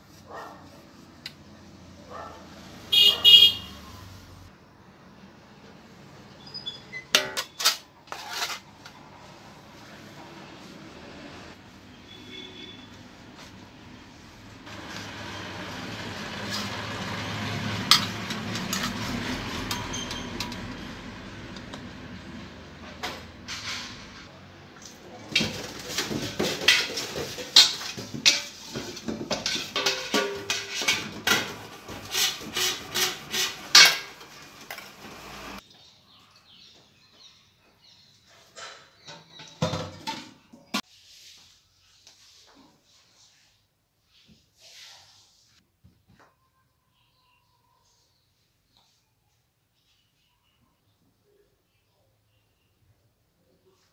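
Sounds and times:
metal pot scrubbed at sink: 25.4s - 35.6s.

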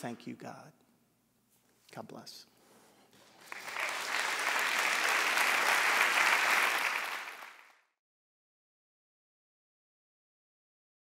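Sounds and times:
audience applauding: 3.2s - 7.9s.

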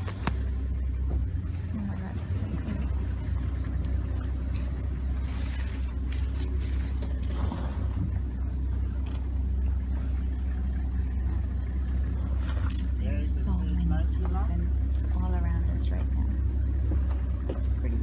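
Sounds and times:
vehicle engine idling: 0.0s - 18.0s.

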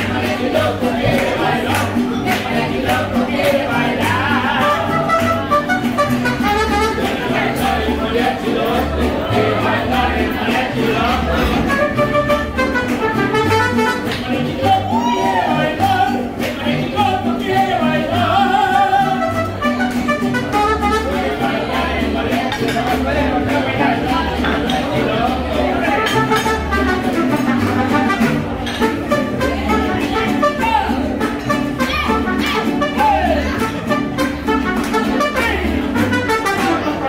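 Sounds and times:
person singing: 0.0s - 19.6s
plucked bass: 0.0s - 37.0s
strummed guitars: 0.0s - 37.0s
trumpet: 4.6s - 7.7s, 11.3s - 14.4s, 18.5s - 21.8s, 25.8s - 37.0s.

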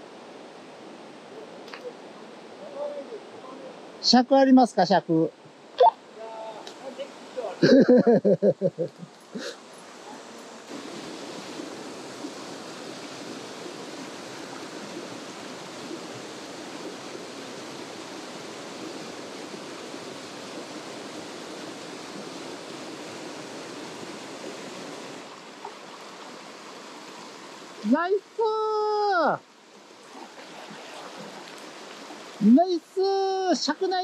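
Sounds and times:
water rushing over rocks: 9.2s - 34.0s.

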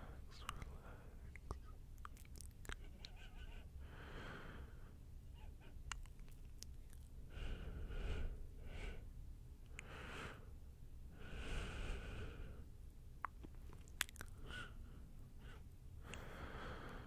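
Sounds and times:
person whispering: 0.0s - 3.6s.

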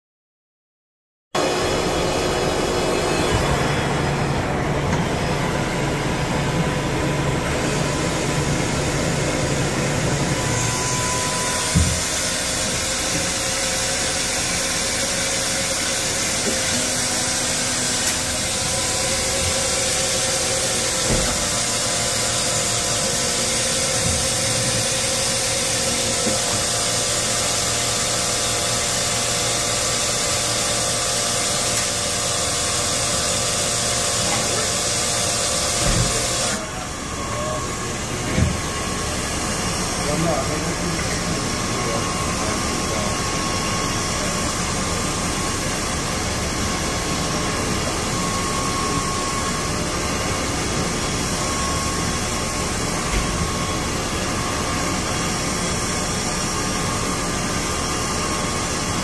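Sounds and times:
powered machinery running: 1.4s - 59.0s.

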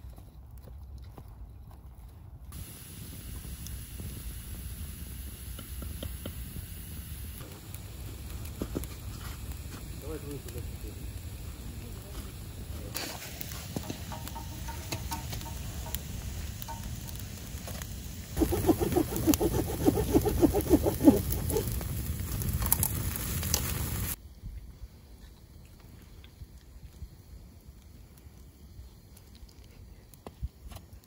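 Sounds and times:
campfire crackling and popping: 2.6s - 24.2s, 25.5s - 31.0s.

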